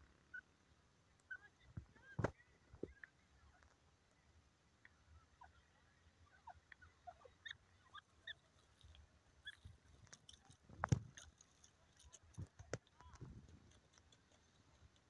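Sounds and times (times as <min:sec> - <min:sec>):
faint bird chirps: 0:00.0 - 0:10.0
bird scratching in dry soil: 0:08.0 - 0:15.0.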